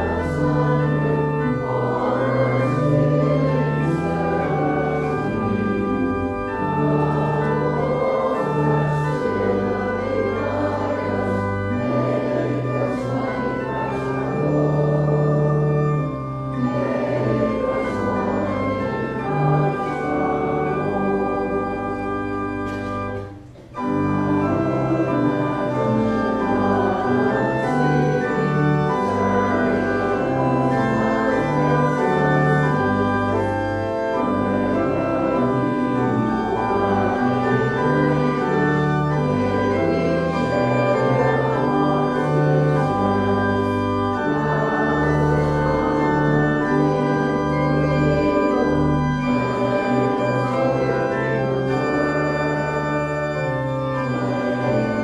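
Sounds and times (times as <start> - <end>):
church organ playing a hymn: 0.0 - 55.0.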